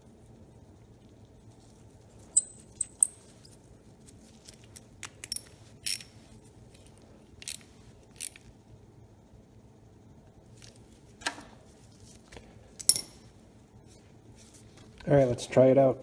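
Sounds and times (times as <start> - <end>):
metallic clicks of tool and parts: 4.5 - 6.2, 6.8 - 8.5, 12.8 - 13.2.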